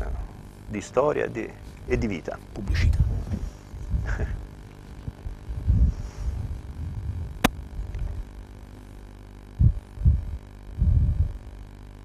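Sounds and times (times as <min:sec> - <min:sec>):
steady low hum: 0:00.0 - 0:12.0
wind buffeting a microphone: 0:02.6 - 0:08.4, 0:09.6 - 0:11.6.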